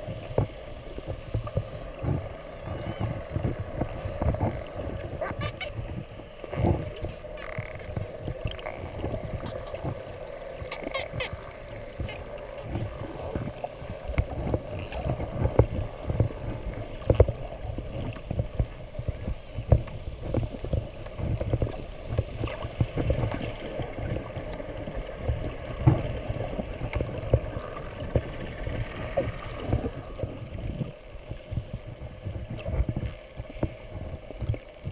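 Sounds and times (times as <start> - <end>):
dolphins whistling underwater: 0.0 - 17.6.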